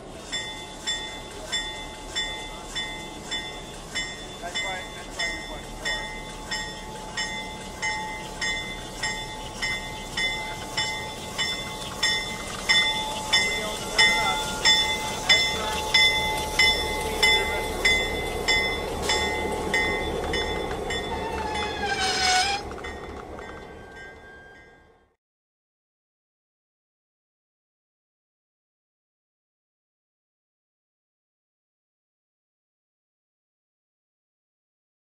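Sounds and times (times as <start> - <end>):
locomotive bell ringing: 0.0 - 25.1
diesel locomotive engine rumble: 0.0 - 25.2
short falling squeal: 21.1 - 22.6.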